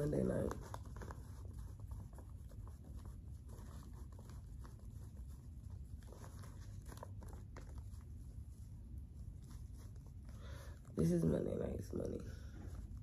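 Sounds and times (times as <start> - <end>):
paper banknotes rustling: 0.0 - 8.4.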